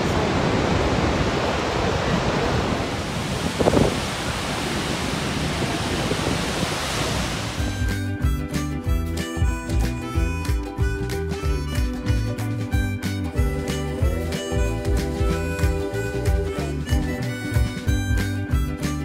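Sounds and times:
waterfall roaring: 0.0s - 7.8s
wind on microphone: 0.0s - 7.9s
background music: 7.6s - 19.0s.

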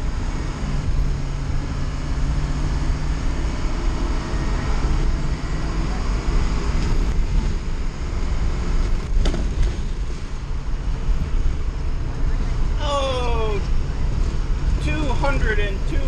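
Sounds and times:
engine drone: 0.0s - 16.0s
road noise: 0.0s - 16.0s.

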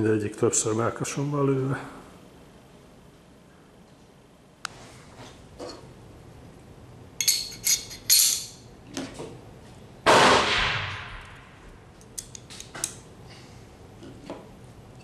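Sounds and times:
loud metal clang: 10.1s - 11.7s.

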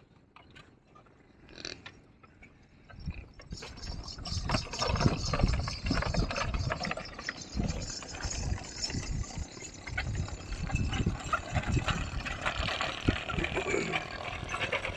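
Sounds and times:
cart clicks and rattles: 3.4s - 14.9s
cart wheels rumbling: 3.4s - 14.9s.

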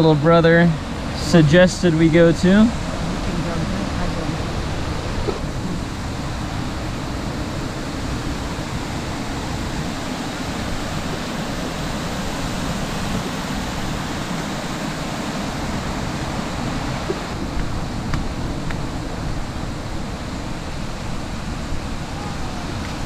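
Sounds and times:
stream rushing over rocks: 0.0s - 23.0s.

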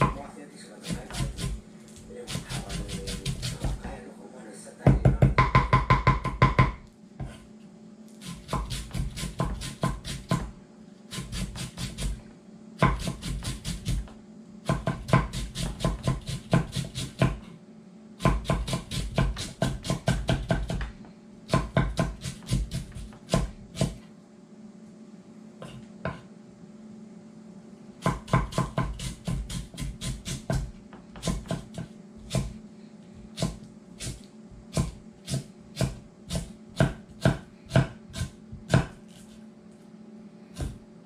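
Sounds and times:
knife chopping on wooden board: 0.8s - 1.6s, 2.3s - 3.9s, 4.9s - 7.4s, 8.2s - 12.2s, 12.8s - 17.5s, 18.2s - 24.0s, 25.6s - 26.3s, 28.0s - 32.6s, 33.3s - 39.4s, 40.6s - 40.8s.

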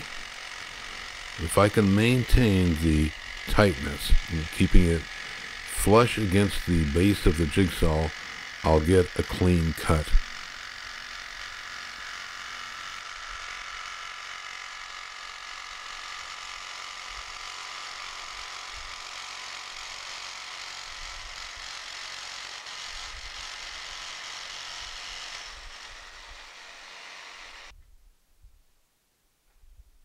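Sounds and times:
electric jigsaw cutting metal: 0.0s - 27.8s.

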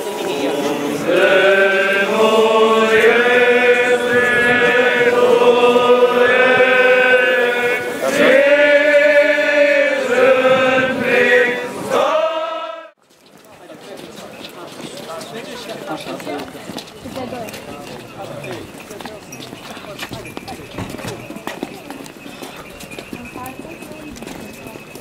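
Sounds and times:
voices singing liturgical chant: 0.0s - 13.0s.

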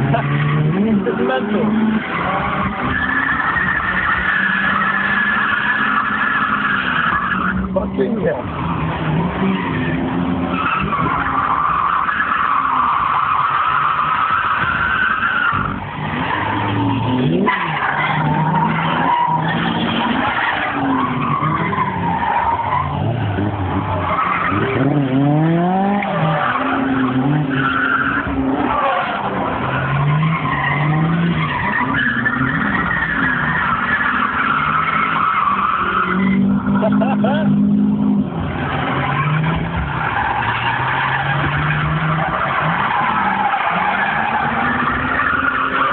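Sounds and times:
car engines revving: 0.0s - 45.9s.

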